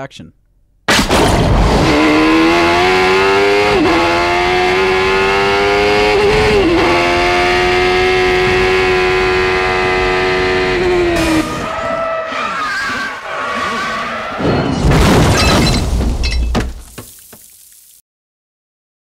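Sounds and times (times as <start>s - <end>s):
race car engine at high revs: 1.0s - 13.4s.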